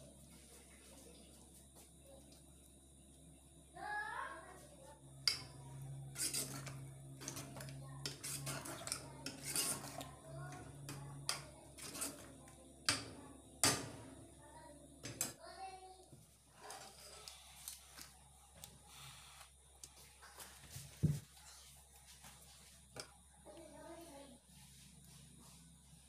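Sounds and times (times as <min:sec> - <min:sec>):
metal ladle scraping pot: 0:06.0 - 0:13.0.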